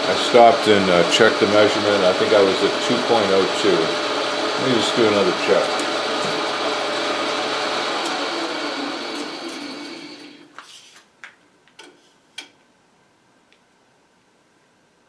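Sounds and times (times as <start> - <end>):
metal lathe running: 0.0 - 10.4.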